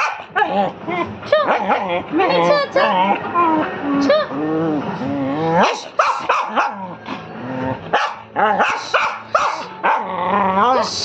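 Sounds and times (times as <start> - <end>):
small dog barking: 0.0 - 0.5, 5.6 - 6.8, 7.9 - 10.1.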